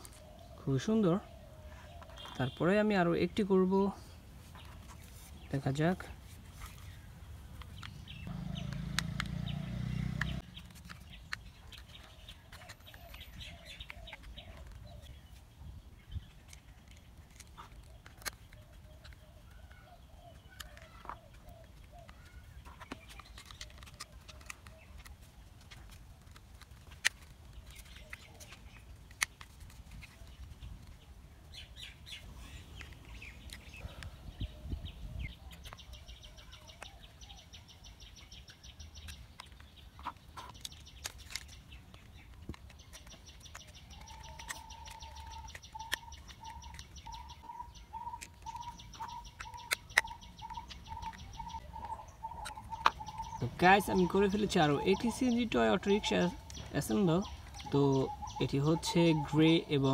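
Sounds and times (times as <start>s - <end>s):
birds chirping: 0.0s - 59.9s
plastic parts clicking together: 7.5s - 8.1s, 10.2s - 15.0s, 16.2s - 19.2s, 19.8s - 31.0s, 32.8s - 33.8s, 38.4s - 47.4s, 48.0s - 57.7s.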